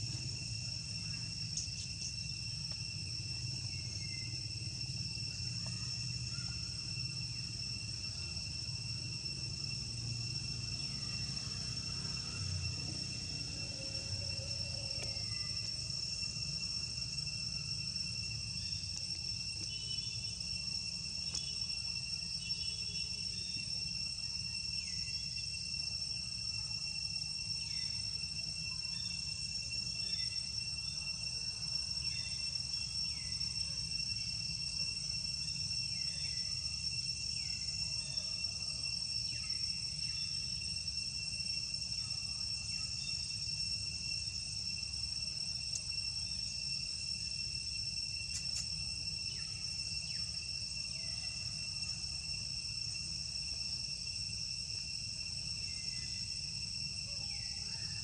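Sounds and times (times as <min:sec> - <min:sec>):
insects chorus: 0:00.0 - 0:58.0.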